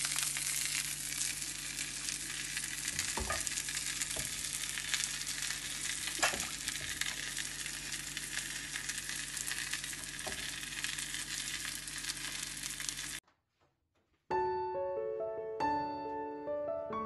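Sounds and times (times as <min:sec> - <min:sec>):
kebabs sizzling in hot oil: 0:00.0 - 0:13.2.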